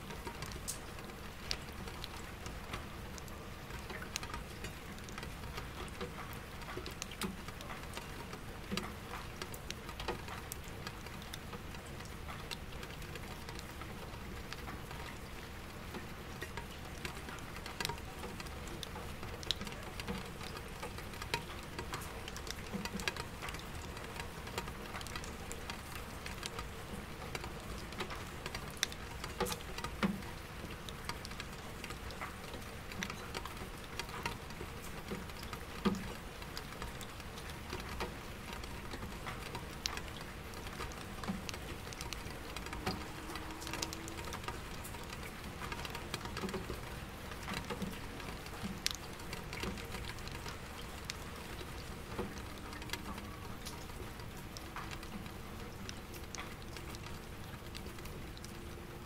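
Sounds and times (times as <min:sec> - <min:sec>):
rain pattering on window glass: 0:00.0 - 0:59.0
distant city traffic hum: 0:41.7 - 0:46.9.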